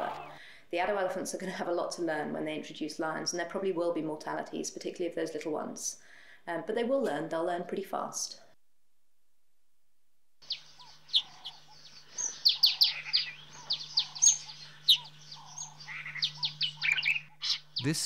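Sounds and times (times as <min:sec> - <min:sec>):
bird chirping: 0:10.4 - 0:18.0
faint low hum: 0:10.4 - 0:18.0.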